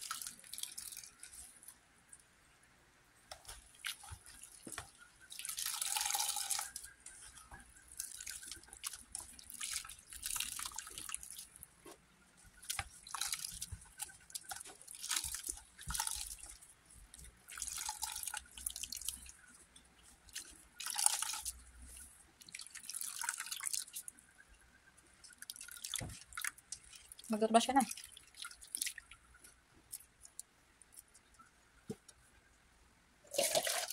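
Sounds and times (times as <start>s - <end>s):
milk dripping and splashing: 0.0s - 1.8s, 3.3s - 24.4s, 25.0s - 32.2s, 33.3s - 33.9s
hands squelching wet coconut: 3.3s - 24.2s.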